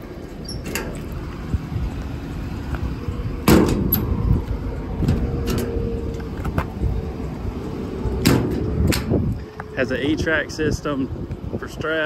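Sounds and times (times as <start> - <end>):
steady low rumble: 0.0 - 12.0
metal clunks and latch clicks: 0.4 - 1.2, 3.4 - 4.2, 5.0 - 5.8, 8.2 - 9.2.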